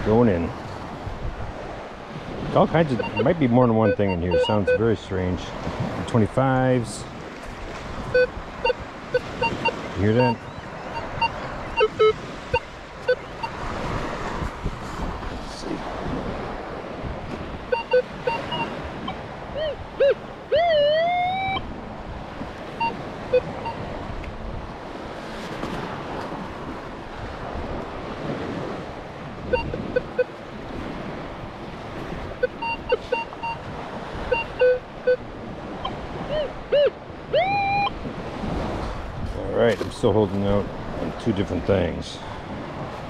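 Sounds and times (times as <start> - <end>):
metal detector beeps: 2.8 - 4.9, 8.1 - 13.6, 17.7 - 21.7, 22.8 - 23.8, 29.5 - 30.4, 32.4 - 33.7, 34.3 - 38.0
metal detector tone dipping and rising: 2.8 - 4.9, 8.1 - 13.6, 17.7 - 21.7, 29.5 - 30.4, 32.4 - 33.6, 34.3 - 35.2, 35.8 - 38.0.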